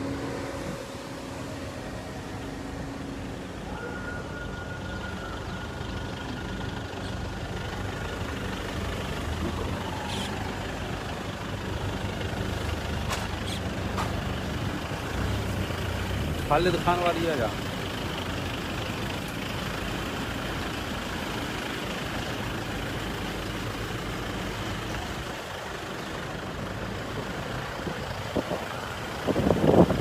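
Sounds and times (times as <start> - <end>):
vehicle engines rumbling: 0.0 - 30.0.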